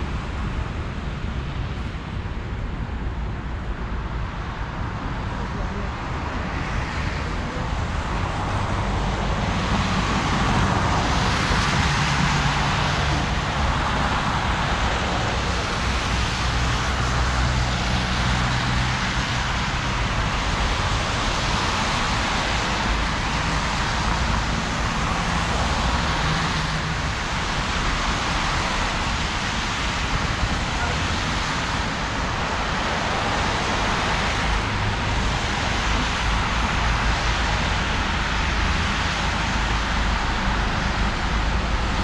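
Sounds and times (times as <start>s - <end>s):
tyres hissing on wet road: 4.4s - 42.0s
passing cars engine hum: 5.5s - 42.0s.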